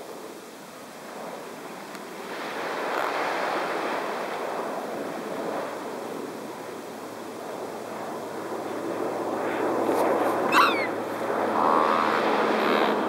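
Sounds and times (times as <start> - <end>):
wind: 0.0 - 13.0
small waves rushing: 2.2 - 12.6.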